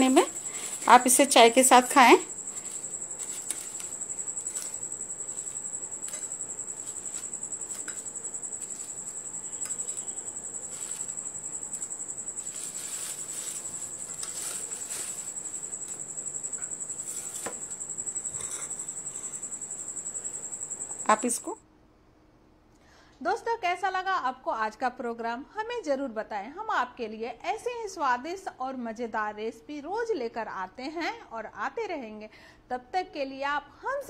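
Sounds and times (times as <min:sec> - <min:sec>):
paper towel rustling: 0:00.0 - 0:16.2
cricket trilling: 0:00.0 - 0:21.6.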